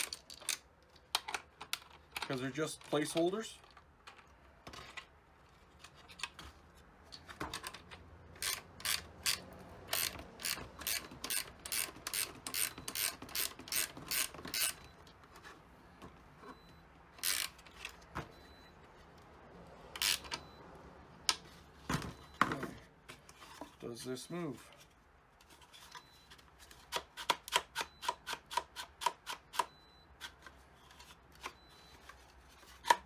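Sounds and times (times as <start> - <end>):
ratcheting wrench clicking: 8.4 - 14.8, 17.2 - 17.6, 20.0 - 20.4.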